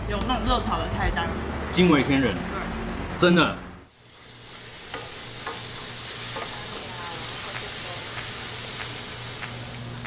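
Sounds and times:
vegetables sizzling in frying pan: 0:03.9 - 0:10.0.

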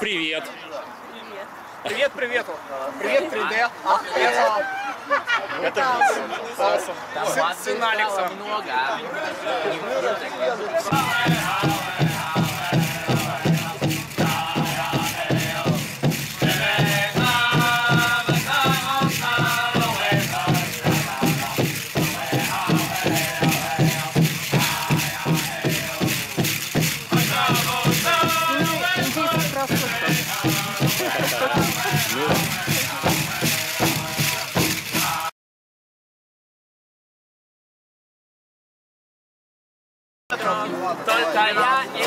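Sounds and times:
high-pitched group singing: 0:10.9 - 0:35.3
jingle cones rattling: 0:10.9 - 0:35.3
steady drumbeat: 0:10.9 - 0:35.3.

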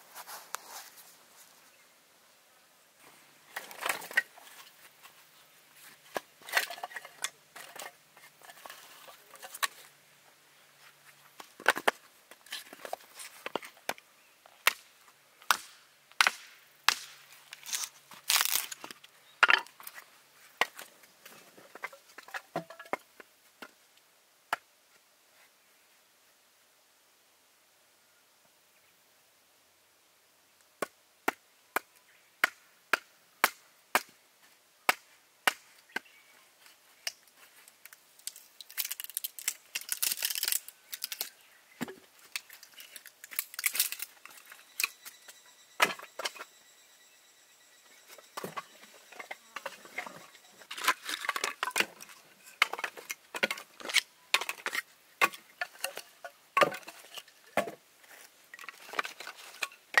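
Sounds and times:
wood cracking and splintering: 0:17.6 - 0:18.9, 0:38.2 - 0:41.3, 0:42.4 - 0:44.9.

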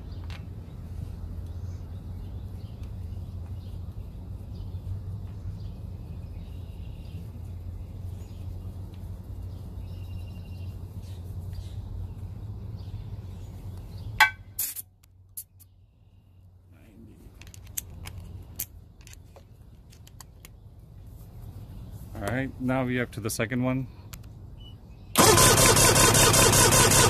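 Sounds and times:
low outdoor rumble: 0:00.0 - 0:27.0
faint bird chirps: 0:24.5 - 0:25.2.

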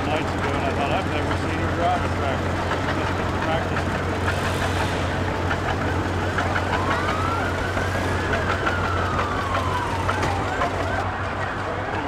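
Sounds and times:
siren wailing: 0:06.0 - 0:12.0.

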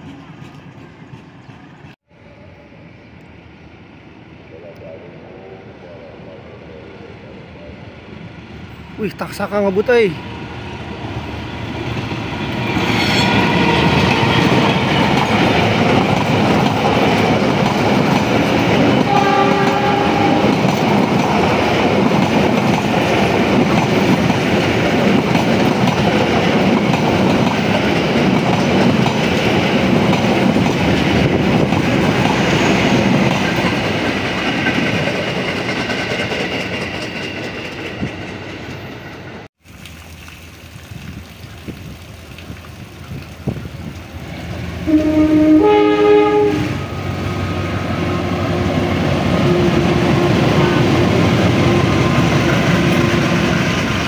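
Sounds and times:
train wheels rushing on rails: 0:00.0 - 0:02.0, 0:08.3 - 0:39.5, 0:43.2 - 0:54.0
train horn: 0:19.0 - 0:20.5, 0:44.8 - 0:47.5.

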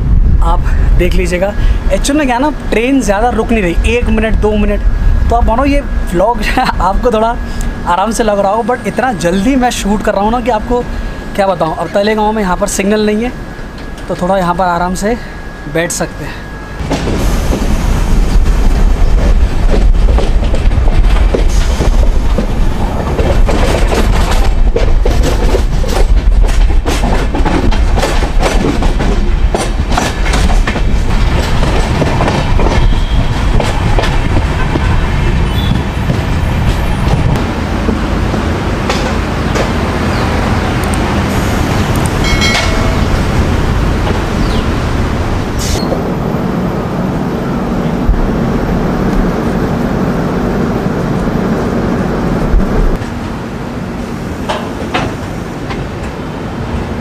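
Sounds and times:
train rumble: 0:00.0 - 0:57.0
wheels clattering over rail joints: 0:19.0 - 0:40.8, 0:41.8 - 0:44.7.

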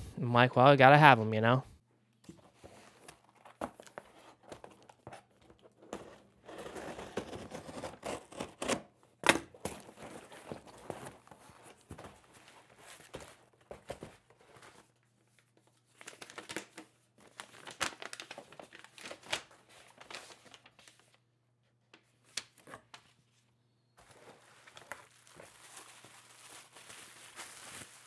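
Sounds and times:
packaging crinkling and rustling: 0:02.6 - 0:08.7, 0:09.5 - 0:21.2, 0:24.0 - 0:28.0.

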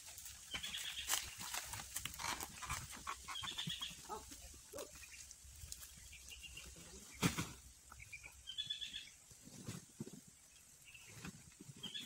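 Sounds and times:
sacks knocking and rustling: 0:07.0 - 0:07.8.

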